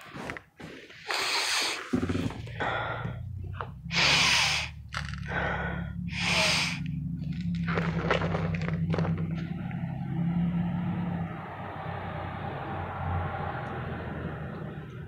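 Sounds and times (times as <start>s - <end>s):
deep sniffs through nose: 1.0s - 2.0s, 3.9s - 4.8s, 6.1s - 6.8s
low steady engine hum: 2.0s - 15.0s.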